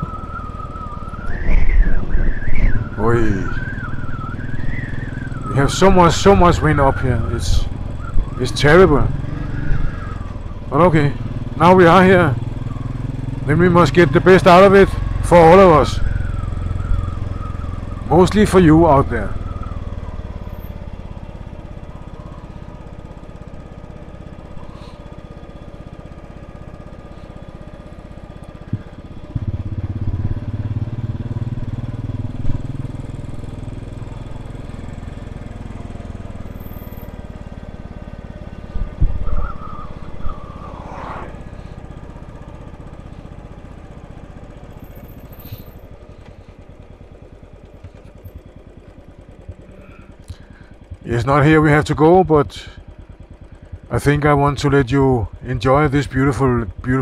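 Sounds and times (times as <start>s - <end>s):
motorcycle engine running: 0.0s - 57.0s.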